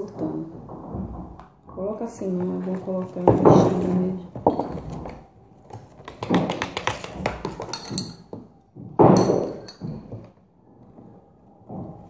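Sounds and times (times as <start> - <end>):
spoon tapping plastic tub: 6.0 - 8.4.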